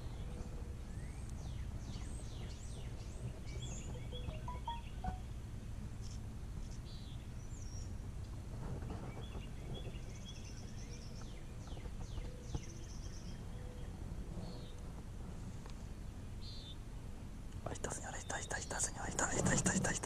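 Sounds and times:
small birds chirping: 0:00.0 - 0:05.2, 0:17.6 - 0:20.0
low outdoor rumble: 0:00.0 - 0:20.0.

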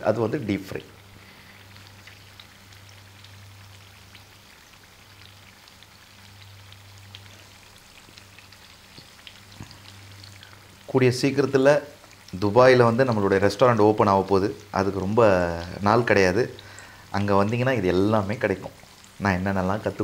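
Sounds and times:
fish sizzling in pan: 0:00.0 - 0:20.0.

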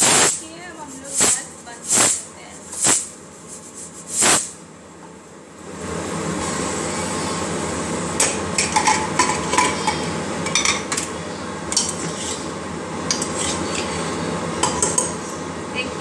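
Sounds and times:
steady hiss: 0:00.0 - 0:03.1, 0:04.0 - 0:04.6.

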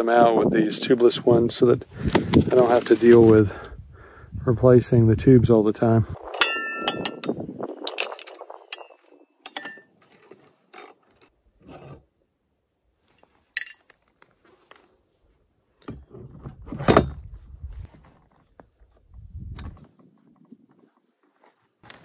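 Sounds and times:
pliers clinking on metal: 0:06.4 - 0:09.9, 0:13.6 - 0:14.3.

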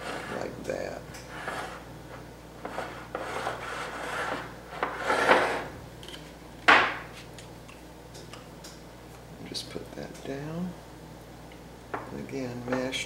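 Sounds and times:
glass bowl scraping on tiles: 0:00.0 - 0:00.4, 0:01.3 - 0:01.8, 0:02.6 - 0:05.7
hands scraping dough in bowl: 0:00.0 - 0:00.6, 0:02.6 - 0:05.7.

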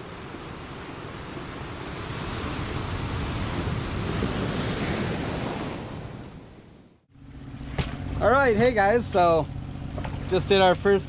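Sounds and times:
ocean waves: 0:00.0 - 0:08.2
wind on open water: 0:00.0 - 0:08.2.

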